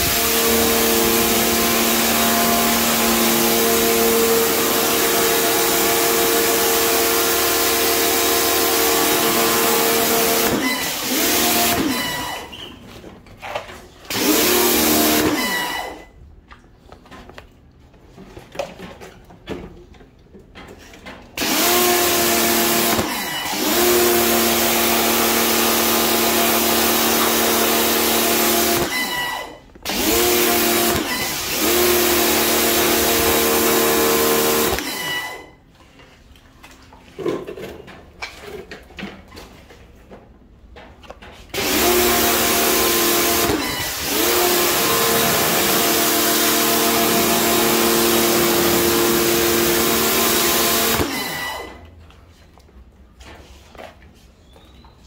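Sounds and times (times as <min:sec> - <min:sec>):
pressure washer motor whining: 0:00.0 - 0:12.7, 0:13.5 - 0:16.2, 0:21.4 - 0:35.6, 0:41.5 - 0:51.9.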